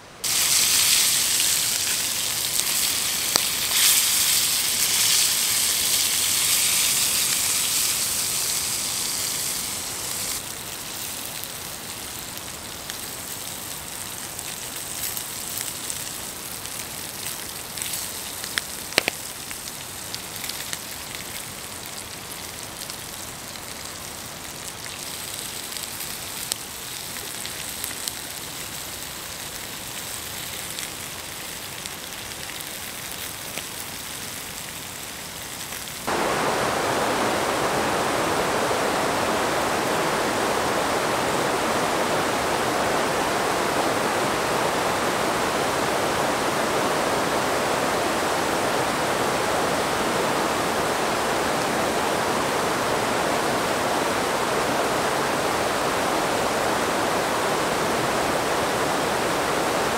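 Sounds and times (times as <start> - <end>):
sausages sizzling in a frying pan: 0.2 - 36.1
small crackles: 0.2 - 36.2.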